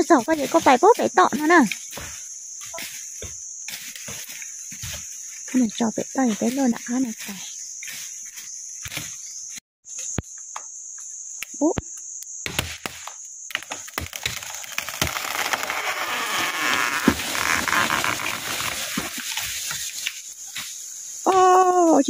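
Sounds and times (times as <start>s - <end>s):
insects droning: 0.0s - 22.0s
rustle of leaves and branches: 0.0s - 22.0s
twigs snapping and clicking: 11.4s - 19.2s.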